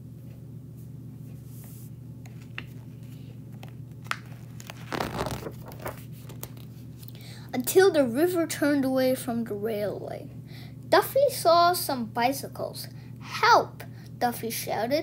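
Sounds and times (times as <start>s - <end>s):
low steady hum: 0.0s - 15.0s
book pages turning: 1.6s - 7.1s.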